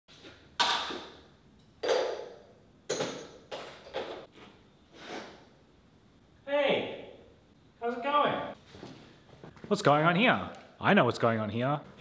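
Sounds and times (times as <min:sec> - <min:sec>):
metal knocks and clangs: 0:01.8 - 0:04.3.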